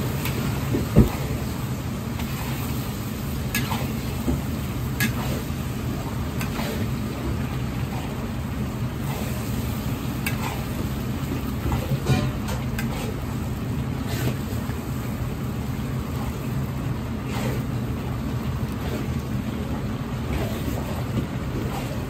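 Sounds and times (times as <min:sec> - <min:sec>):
noodles sizzling in wok: 0:00.0 - 0:18.4
gas burner roaring: 0:00.0 - 0:22.0
utensil knocking wok: 0:03.3 - 0:08.1, 0:09.0 - 0:13.2.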